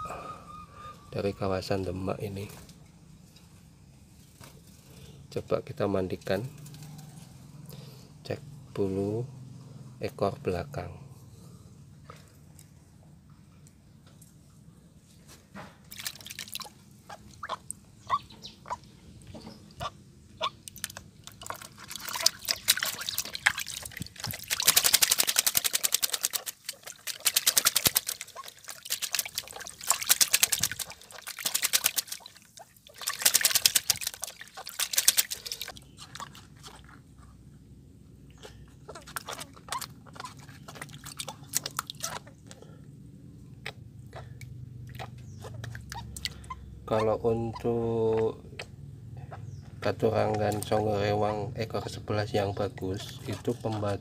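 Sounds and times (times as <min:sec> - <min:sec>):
bird wings beating in water: 0:15.9 - 0:16.8, 0:20.7 - 0:35.8
water splashing and dripping: 0:15.9 - 0:18.2, 0:20.4 - 0:36.8, 0:38.9 - 0:42.3, 0:43.6 - 0:46.4, 0:49.9 - 0:51.4.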